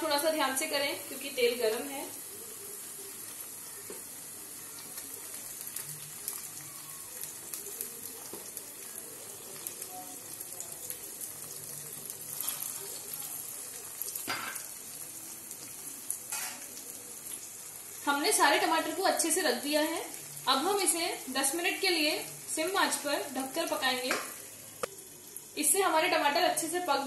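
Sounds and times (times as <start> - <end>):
oil sizzling in a pan: 0.0 - 27.0.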